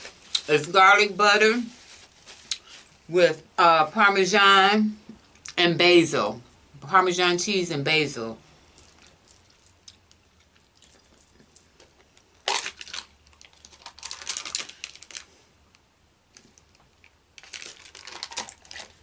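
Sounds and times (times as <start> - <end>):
thin plastic crinkling and clicking: 8.8 - 19.0.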